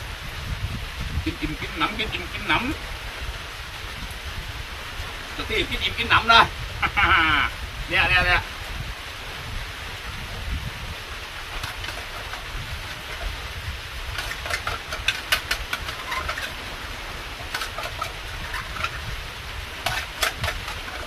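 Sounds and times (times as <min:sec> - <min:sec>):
wind rumbling on microphone: 0:00.0 - 0:21.0
small clicks and crackles: 0:14.1 - 0:16.7, 0:17.4 - 0:19.1, 0:19.8 - 0:21.0.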